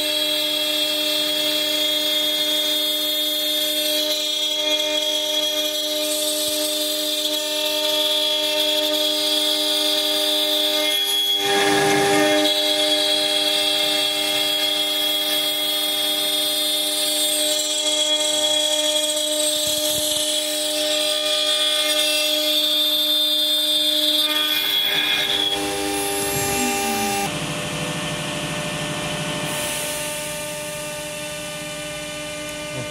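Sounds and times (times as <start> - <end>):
cnc router milling metal: 0.0 - 32.9
low machine hum: 25.4 - 32.9.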